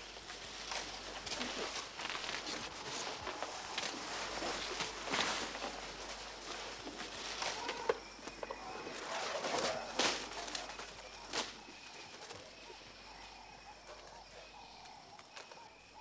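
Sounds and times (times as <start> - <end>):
faint birds calling: 0.0 - 16.0
wood cracking: 0.2 - 12.4.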